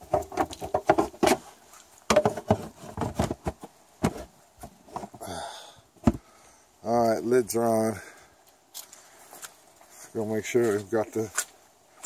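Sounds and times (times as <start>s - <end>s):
plastic lids knocking and clicking: 0.0s - 1.4s, 2.1s - 4.2s.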